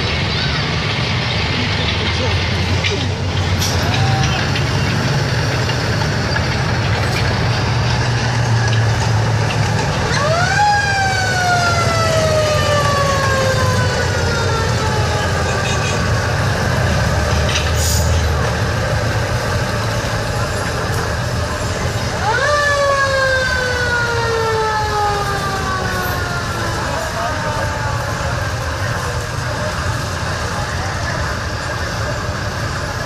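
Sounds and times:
tank engine rumbling: 0.0s - 33.0s
siren-like sweeping tone: 10.1s - 16.1s.

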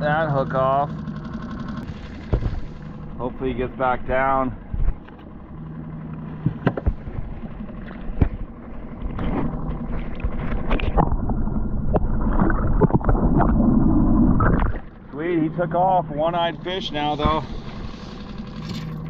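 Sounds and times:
boat motor humming: 0.0s - 19.0s
underwater water sloshing: 0.9s - 19.0s
knocks and splashes: 1.8s - 2.8s, 6.3s - 13.7s.

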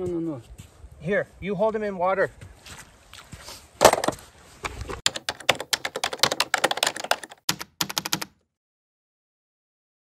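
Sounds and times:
typewriter key clacks: 5.1s - 8.3s.

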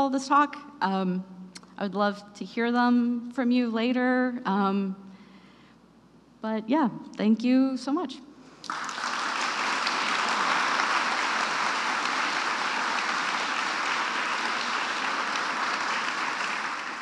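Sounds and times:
audience applauding: 8.6s - 17.0s.

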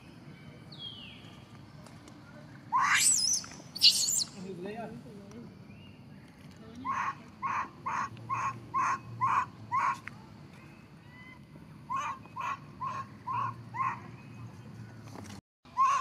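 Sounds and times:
animal calling: 2.7s - 4.4s, 6.8s - 10.1s, 11.1s - 14.2s, 15.7s - 16.0s.

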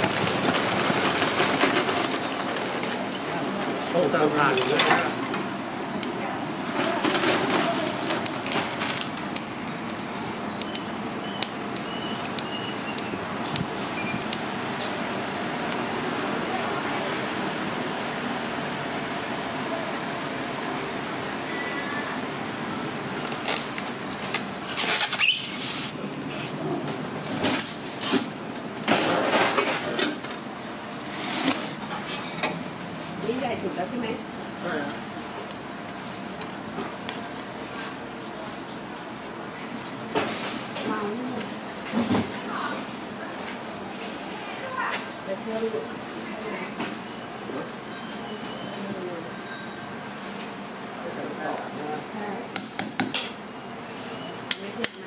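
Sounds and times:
charcoal crackling and popping: 0.0s - 16.8s, 23.0s - 42.4s, 54.4s - 55.0s.

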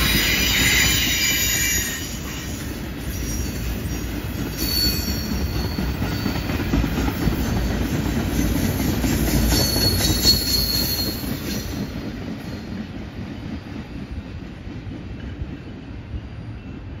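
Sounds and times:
high wheel squeal: 0.0s - 6.6s, 9.2s - 11.9s
train wheels rumbling and clacking: 0.0s - 17.0s.

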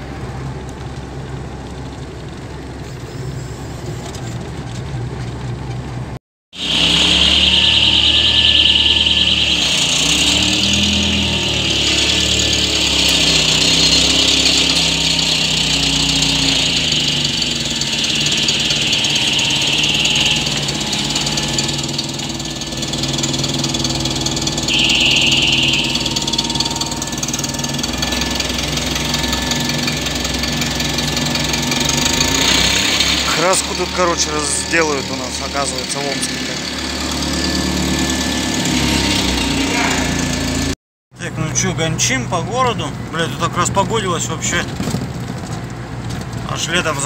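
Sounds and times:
forklift engine revving: 0.0s - 40.8s
high steady whine: 6.6s - 36.6s.

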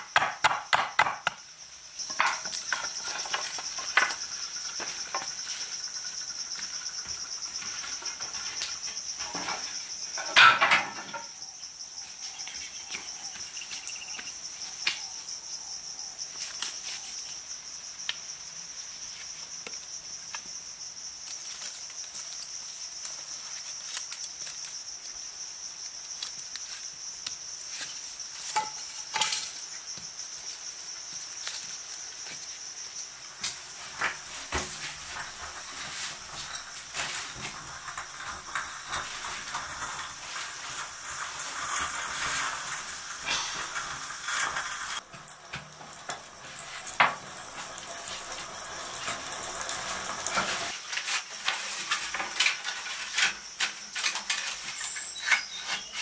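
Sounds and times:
wooden sticks knocking: 0.0s - 1.4s
high-pitched insect drone: 1.2s - 45.0s.

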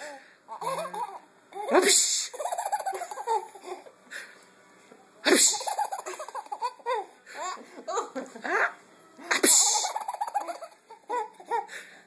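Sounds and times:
baby giggling: 9.7s - 11.7s.

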